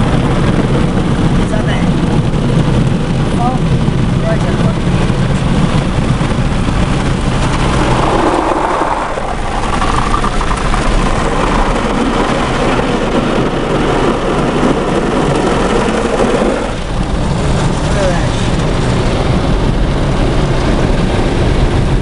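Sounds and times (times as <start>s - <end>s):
car wash machinery rumble: 0.0s - 22.0s
car wash water spray: 6.4s - 19.3s.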